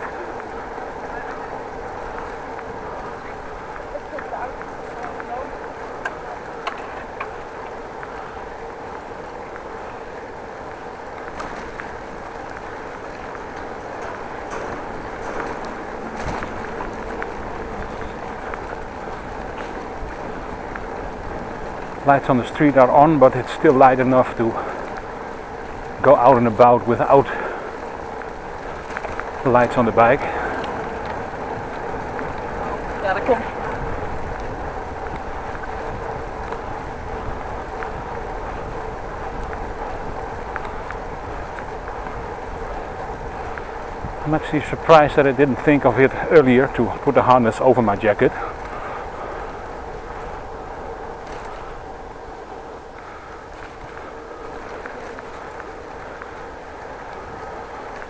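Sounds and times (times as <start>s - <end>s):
bicycle tyres rolling on pavement: 0.0s - 58.0s
faint ticks and rattles: 0.0s - 58.0s
wind rushing past microphone: 0.0s - 58.0s
faint ticks: 33.6s - 44.2s, 48.2s - 58.0s.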